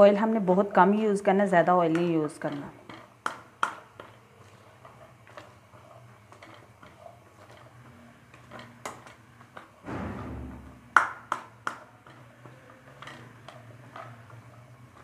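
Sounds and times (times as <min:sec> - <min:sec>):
plastic spatula scraping a pan: 0:02.4 - 0:09.8, 0:12.0 - 0:15.0.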